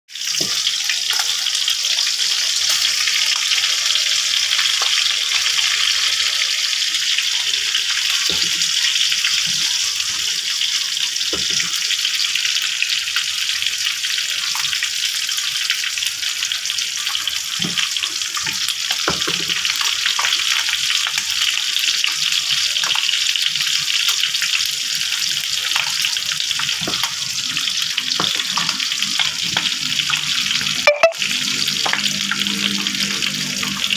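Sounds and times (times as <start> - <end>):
fish frying in hot oil: 0.1 - 33.9.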